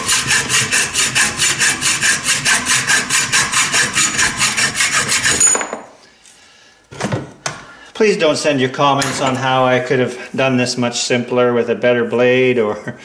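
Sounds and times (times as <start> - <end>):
hacksaw cutting steel tubing: 0.0 - 5.6.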